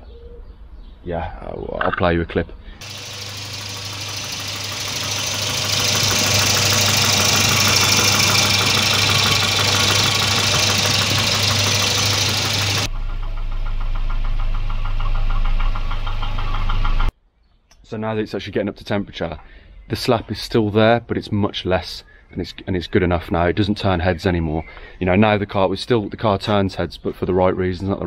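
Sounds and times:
car engine running with knock: 2.8s - 17.1s
low hum: 2.8s - 17.1s.

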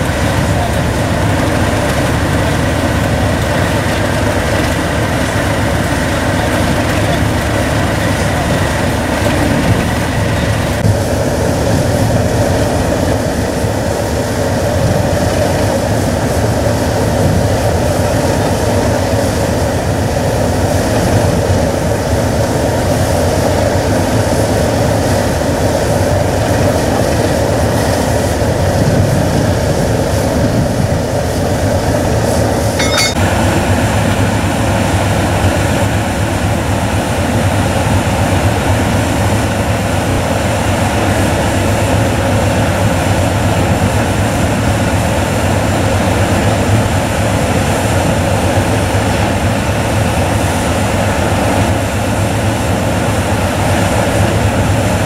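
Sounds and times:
diesel locomotive engine idling: 0.0s - 55.0s.

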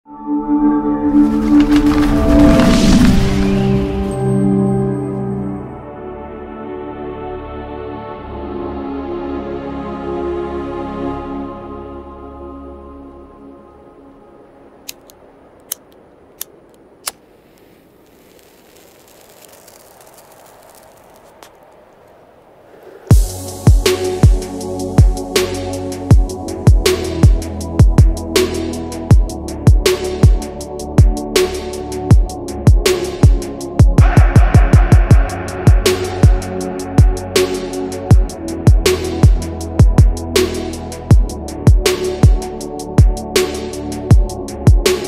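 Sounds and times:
whoosh: 1.2s - 4.4s, 34.0s - 36.9s.

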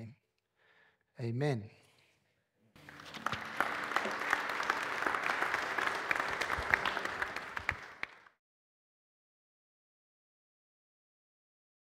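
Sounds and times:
congregation applauding: 2.8s - 8.4s.

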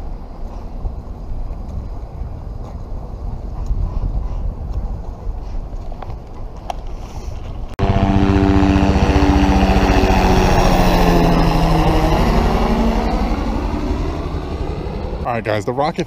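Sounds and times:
wind on microphone: 0.0s - 15.3s
helicopter rotor chop: 7.8s - 15.5s.

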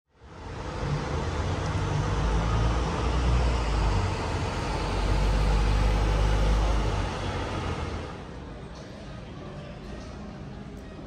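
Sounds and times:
vehicle rumble in motion: 0.1s - 8.5s.

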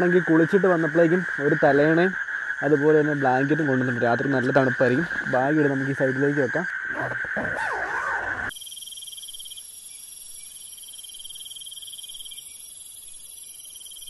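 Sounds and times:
crickets trilling: 0.0s - 14.0s
animal chorus: 6.6s - 8.5s
rising and falling animal calls: 6.8s - 8.5s.

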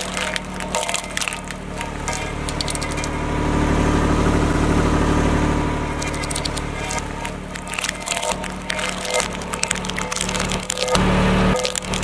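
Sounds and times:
coconut shells cracking: 0.0s - 3.2s, 5.9s - 12.0s
road roller engine running: 0.0s - 12.0s.

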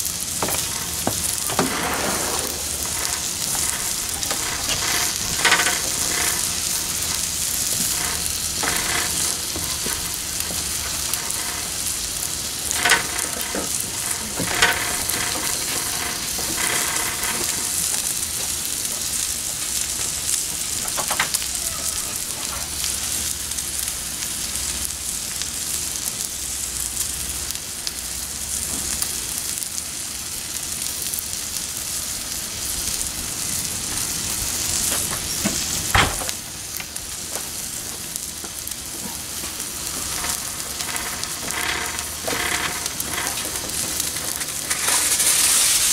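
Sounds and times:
fat popping and crackling: 0.0s - 21.6s, 32.8s - 45.9s
steak sizzling on a griddle: 0.0s - 45.9s.

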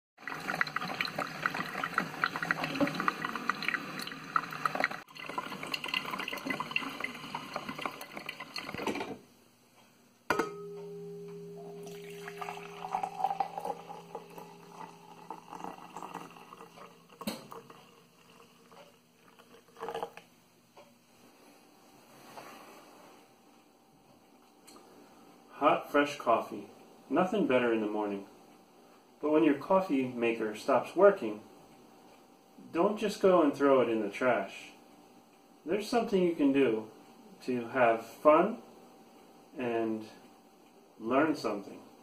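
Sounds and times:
coffee pouring into mug: 0.2s - 9.1s, 11.6s - 20.3s
coffee maker gurgling: 0.2s - 9.2s, 11.6s - 20.3s
low steady hum: 0.3s - 42.0s.

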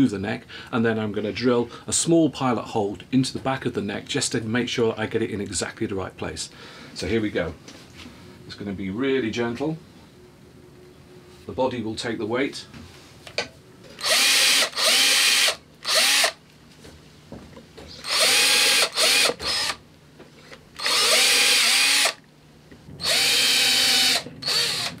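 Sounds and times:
electric drill drilling into wood: 14.0s - 16.4s, 18.0s - 19.8s, 20.8s - 22.2s, 23.0s - 25.0s.

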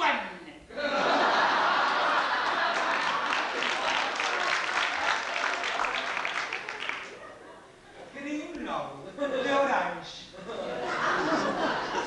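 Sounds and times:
audience applauding: 1.6s - 7.4s.

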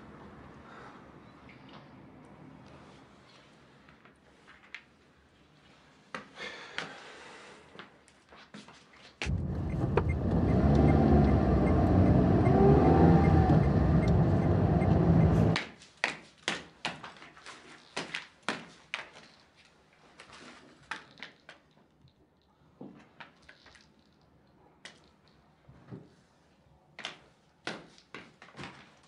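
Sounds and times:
car cabin rumble: 9.3s - 15.6s.

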